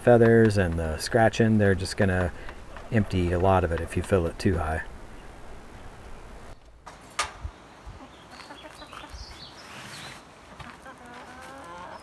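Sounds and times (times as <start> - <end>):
hens clucking: 0.1 - 6.1, 7.8 - 9.3, 10.5 - 12.0.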